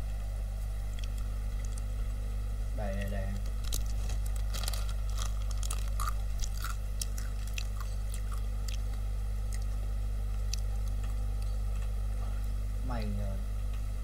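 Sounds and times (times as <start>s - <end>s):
low electrical hum: 0.0s - 14.0s
crunchy chewing: 0.6s - 2.1s, 3.3s - 11.6s.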